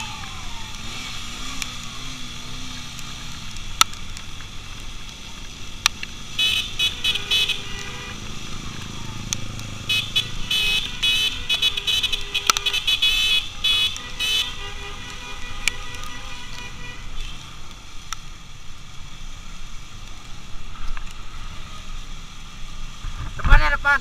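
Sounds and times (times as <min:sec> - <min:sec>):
motorcycle engines running: 0:00.0 - 0:23.6
road noise: 0:00.0 - 0:24.0
horns honking: 0:06.3 - 0:08.7, 0:09.7 - 0:17.6.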